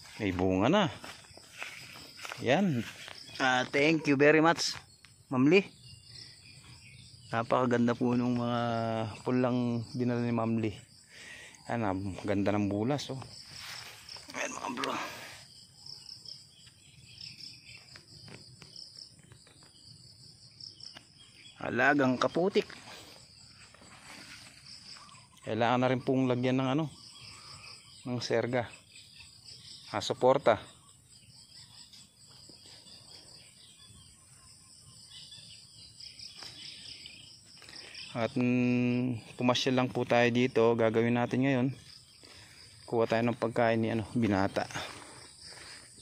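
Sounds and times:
crickets chirring: 0.0s - 46.0s.

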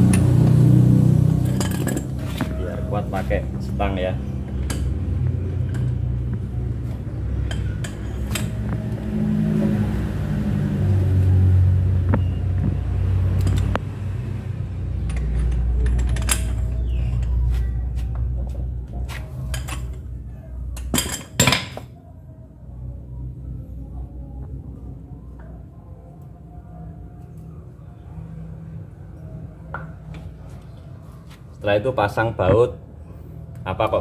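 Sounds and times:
steady low rumble: 0.0s - 20.8s
metal tools clanking on wheel hub: 1.4s - 5.0s, 7.4s - 8.6s, 15.0s - 17.5s, 19.4s - 20.2s, 20.8s - 21.9s.

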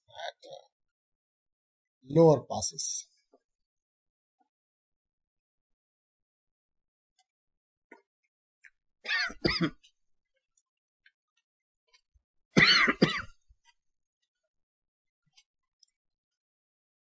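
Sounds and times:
person clearing throat: 9.1s - 9.8s, 12.6s - 13.4s.

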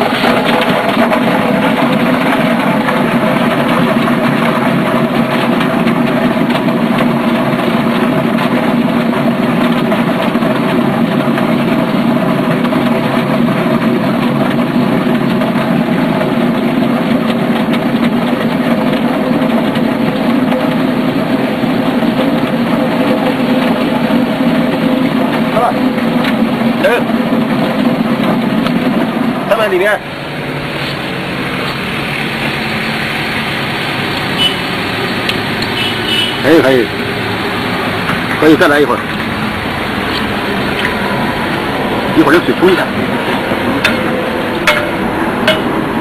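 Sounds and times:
potatoes rattling in spinning drum: 0.0s - 35.7s
motor hum: 0.0s - 46.0s
water spraying: 0.0s - 46.0s.

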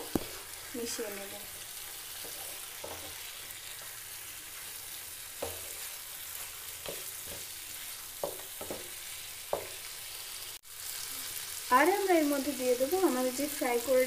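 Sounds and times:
chicken sizzling in hot oil: 0.0s - 14.0s
spatula scraping and knocking pan: 1.7s - 10.0s.

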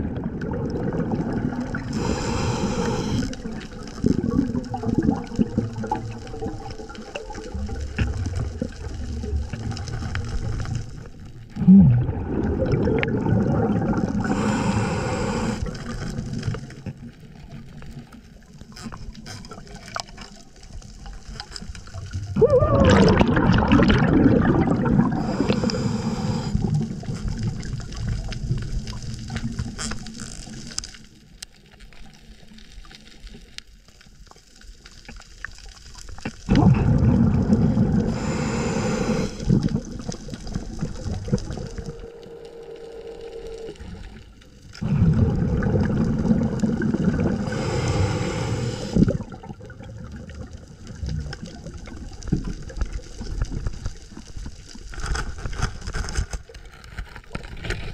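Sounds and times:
exhaled bubbles rushing: 0.0s - 16.9s, 21.9s - 29.7s, 36.2s - 43.0s, 43.7s - 53.8s
diver breathing through regulator: 1.7s - 3.5s, 14.0s - 16.0s, 24.1s - 27.1s, 36.5s - 39.9s, 46.8s - 49.3s.

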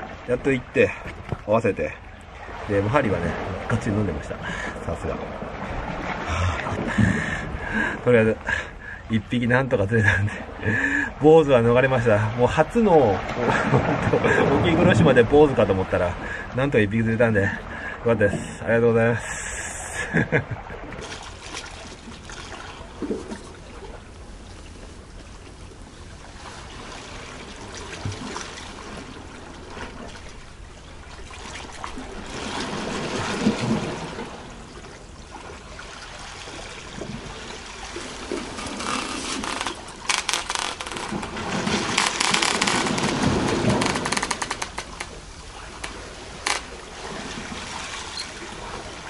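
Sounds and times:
seawater surging on rocks: 0.0s - 49.0s
water crackling: 19.2s - 49.0s.

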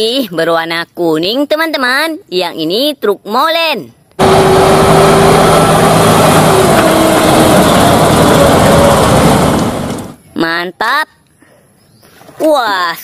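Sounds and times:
truck diesel engine rumbling: 4.2s - 10.3s.

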